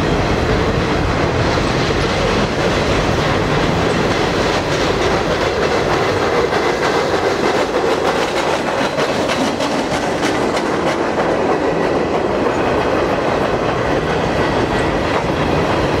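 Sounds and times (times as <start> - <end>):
clickety-clack over rail joints: 0.0 - 16.0
train wheels rumbling on rails: 0.0 - 16.0.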